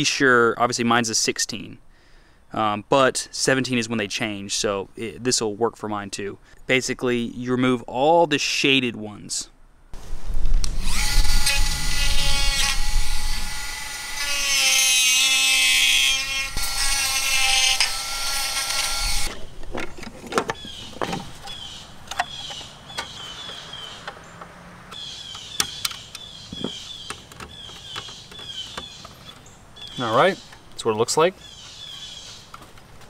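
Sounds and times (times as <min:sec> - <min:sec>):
rotary tool cutting plastic: 0:10.6 - 0:19.4.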